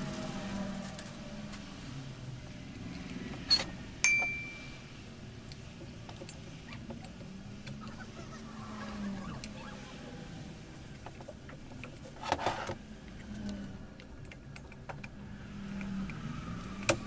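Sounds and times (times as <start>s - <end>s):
bell-like metal ring: 4.0s - 4.8s.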